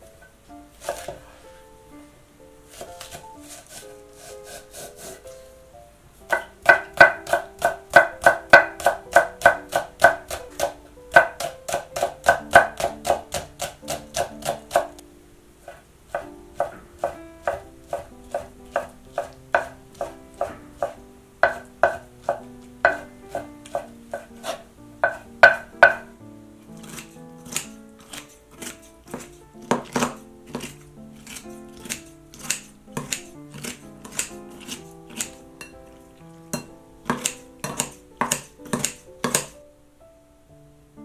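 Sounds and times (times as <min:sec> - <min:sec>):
light background music: 0:00.0 - 0:41.0
knife slicing on cutting board: 0:00.8 - 0:01.3, 0:02.7 - 0:05.4, 0:16.6 - 0:25.6, 0:26.8 - 0:35.4, 0:36.5 - 0:39.5.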